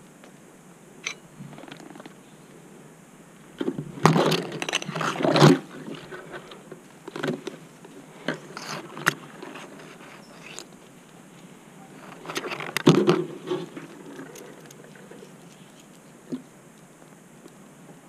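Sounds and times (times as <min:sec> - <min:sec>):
rope and branches scraping: 0:03.8 - 0:16.4.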